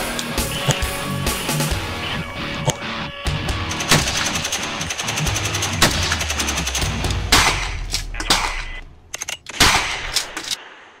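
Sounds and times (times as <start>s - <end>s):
background music with bass: 0.0s - 8.2s.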